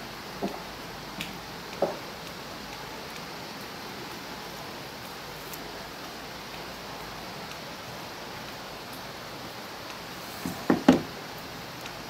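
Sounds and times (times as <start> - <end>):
steady outdoor hiss: 0.0 - 12.0
handling leaves and tape: 4.4 - 5.9.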